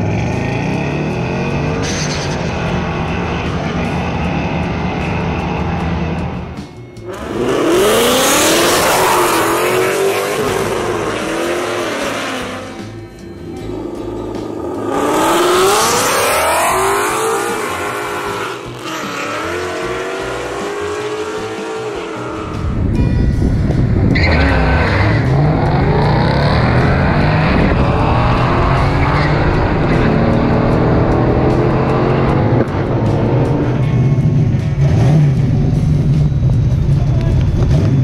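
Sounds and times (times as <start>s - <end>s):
car engines revving through gears: 0.0s - 22.9s, 23.6s - 38.0s
heavy low drone: 0.0s - 38.0s
tyre squeal: 24.1s - 25.4s.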